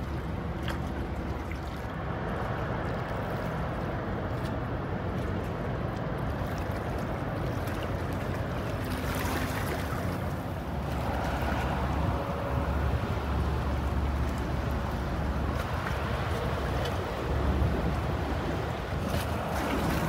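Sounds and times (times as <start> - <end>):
wind buffeting microphone: 4.0 - 20.0.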